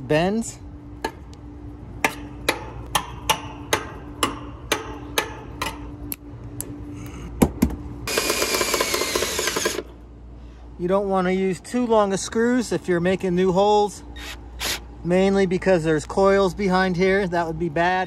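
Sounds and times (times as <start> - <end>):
cordless drill driving screw: 8.1 - 9.8, 14.2 - 14.8.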